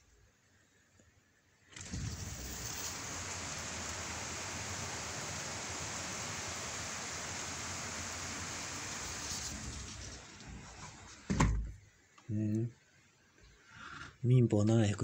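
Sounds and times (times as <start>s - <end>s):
heavy rain pouring: 1.8s - 11.3s.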